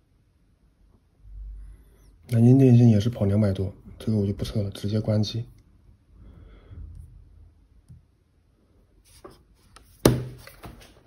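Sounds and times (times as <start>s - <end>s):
rustling and handling: 9.0s - 11.0s.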